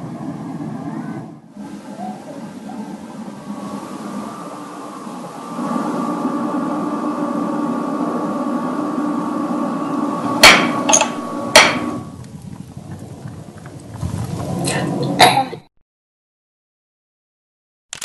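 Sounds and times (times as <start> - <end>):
machine hum: 0.0 - 15.4
sharp knocks: 10.4 - 12.0.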